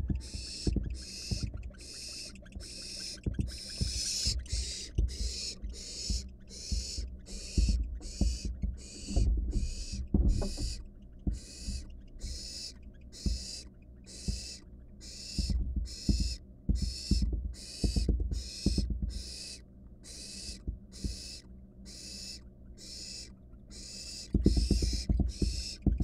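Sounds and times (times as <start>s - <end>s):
owl nestlings rasping hisses: 0.2s - 10.8s, 11.4s - 25.8s.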